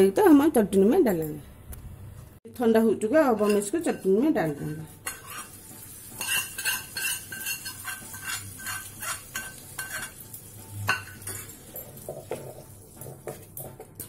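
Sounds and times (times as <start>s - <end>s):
spoon scraping metal pan: 3.2s - 13.5s.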